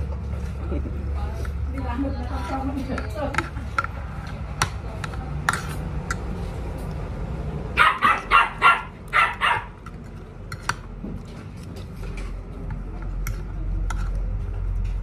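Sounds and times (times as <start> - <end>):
dog barking: 7.8 - 9.7.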